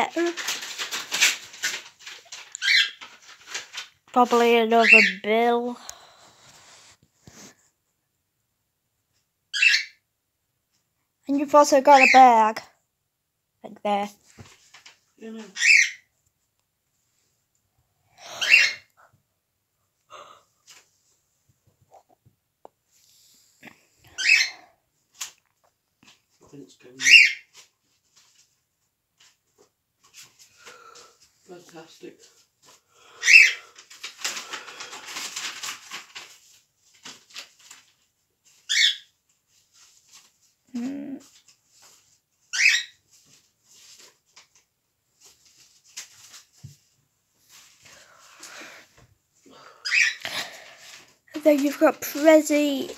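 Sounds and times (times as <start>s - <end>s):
paper rustling: 0.0s - 4.8s, 27.5s - 32.8s, 33.6s - 48.8s, 50.3s - 52.9s
envelope tearing: 0.1s - 4.0s, 33.7s - 37.9s.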